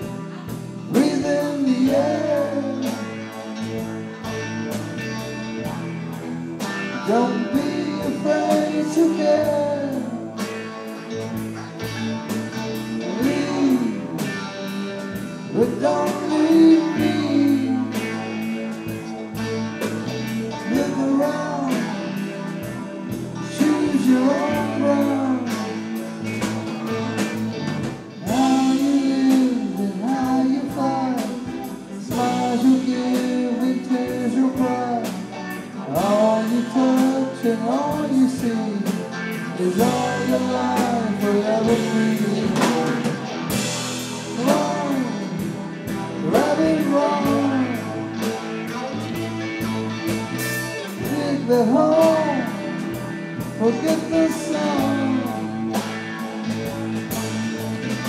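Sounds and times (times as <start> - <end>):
man singing: 0.0 - 4.3, 6.8 - 10.6, 12.7 - 19.0, 20.5 - 26.2, 28.2 - 49.2, 50.8 - 55.9
live rock band: 0.0 - 58.0.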